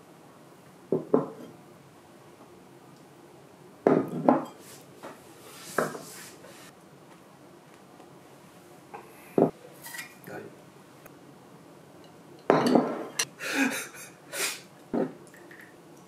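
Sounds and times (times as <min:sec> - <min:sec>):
glass and tableware clinking on wood: 0:03.9 - 0:04.6, 0:12.0 - 0:13.3.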